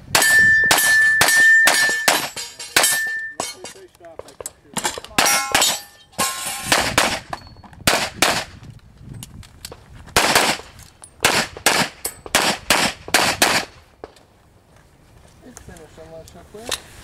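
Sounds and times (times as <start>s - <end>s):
pistol shots: 0.1s - 3.2s, 5.2s - 8.6s, 10.2s - 13.8s.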